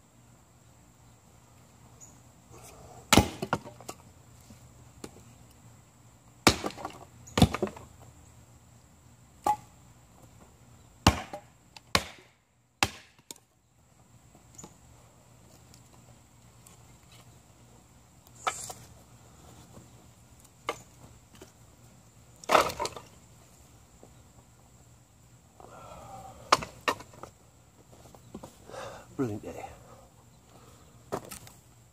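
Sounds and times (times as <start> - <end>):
axe chopping wood on block: 3.1 - 3.9, 6.4 - 7.9, 9.4 - 9.7, 11.0 - 13.4, 22.4 - 23.0, 26.5 - 27.2.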